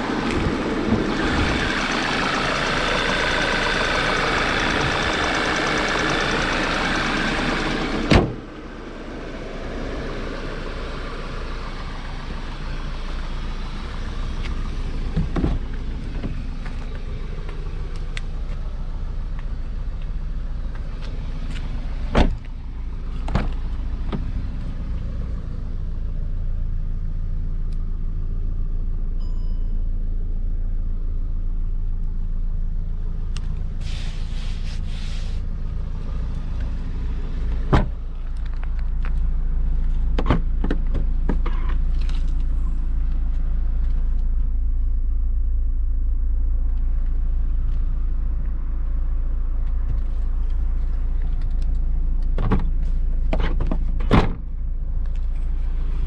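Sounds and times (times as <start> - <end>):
car engine idling: 0.0 - 56.0
car door opening click: 8.1 - 8.4.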